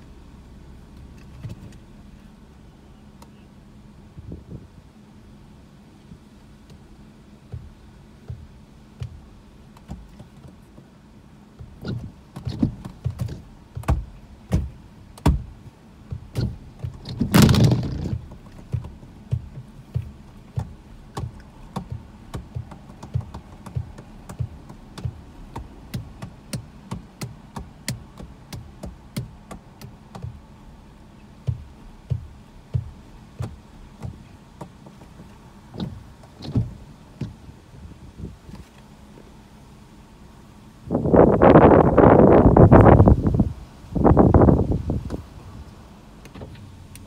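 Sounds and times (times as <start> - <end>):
windshield wiper sweeping: 0.7 - 2.5, 5.7 - 47.0
raindrops tapping on a car: 6.1 - 37.6.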